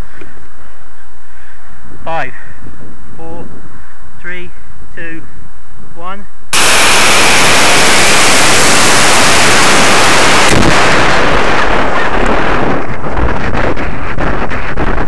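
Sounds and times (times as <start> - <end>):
rushing wind with buffets: 6.5 - 15.0
rocket motor roaring: 6.6 - 13.5.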